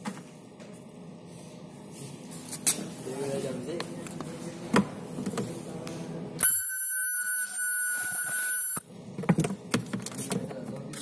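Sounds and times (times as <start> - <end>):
ultrasonic welder high-pitched whine: 6.4 - 8.9.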